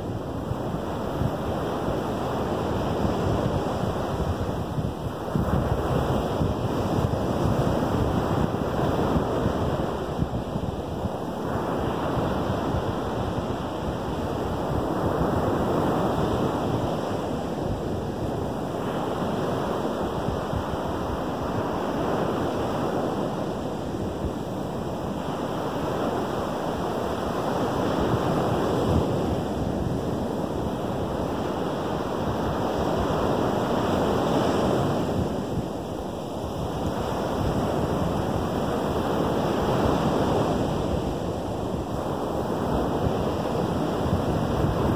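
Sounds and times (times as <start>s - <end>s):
waves breaking on beach: 0.0s - 44.9s.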